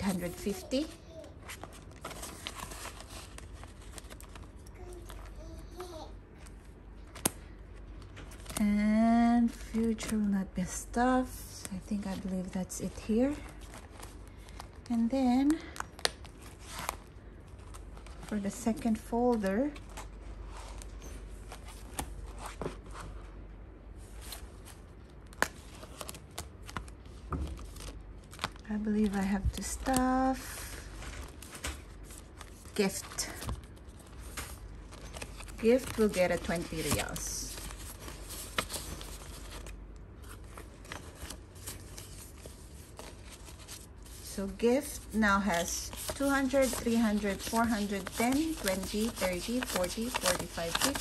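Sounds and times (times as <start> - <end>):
paper and plastic rustling: 0.0 - 8.8, 24.0 - 51.0.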